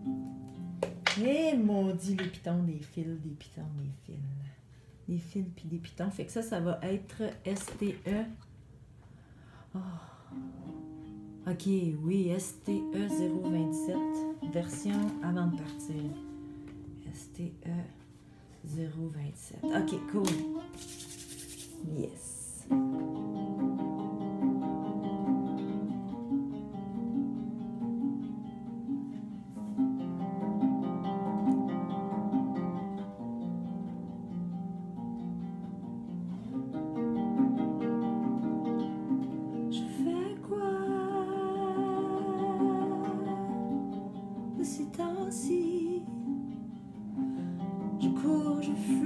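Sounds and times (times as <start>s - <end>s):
acoustic guitar picking: 22.7s - 40.3s
person singing with vibrato: 39.8s - 43.9s.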